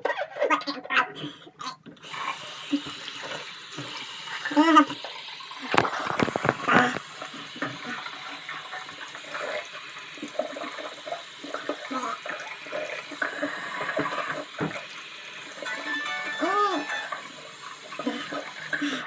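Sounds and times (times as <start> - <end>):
faucet running into sink: 1.6 - 19.0
person rinsing mouth spluttering: 5.6 - 8.0.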